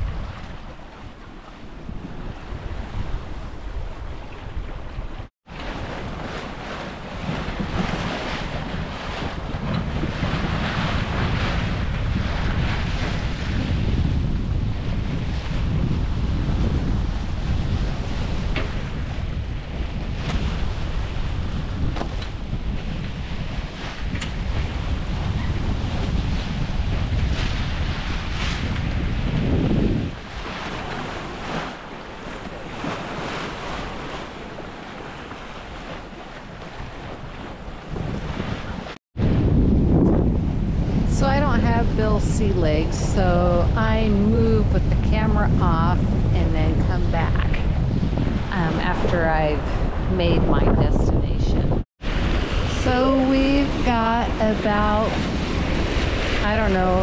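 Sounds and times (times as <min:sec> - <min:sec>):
waves washing along hull: 0:00.0 - 0:57.0
wind buffeting microphone: 0:00.0 - 0:57.0.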